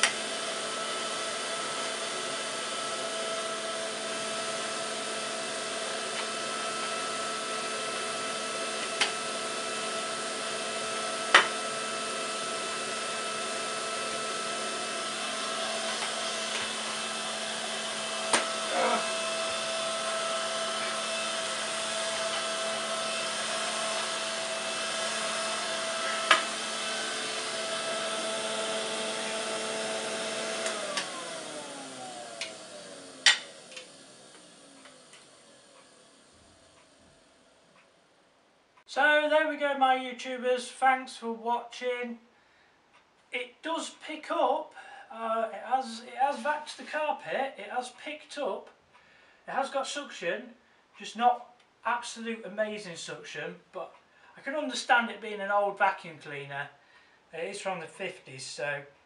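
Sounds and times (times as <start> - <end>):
vacuum cleaner running: 0.0 - 37.7.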